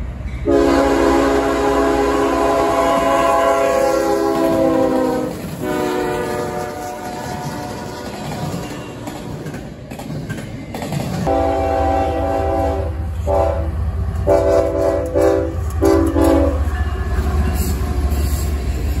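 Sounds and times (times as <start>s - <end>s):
freight cars rolling on rails: 0.0s - 19.0s
locomotive air horn: 0.4s - 8.2s, 11.3s - 16.7s
locomotive engine rumble: 11.0s - 19.0s.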